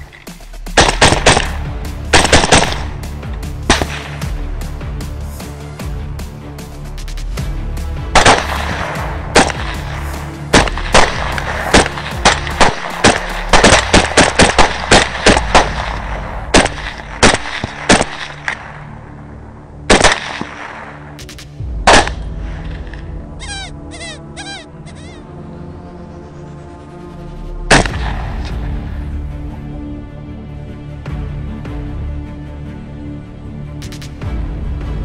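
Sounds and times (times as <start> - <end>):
background music with low notes: 0.0 - 35.0
rifle gunshots: 0.8 - 2.9, 8.2 - 9.8, 10.5 - 18.8, 19.9 - 21.0, 21.9 - 22.2, 27.7 - 28.3.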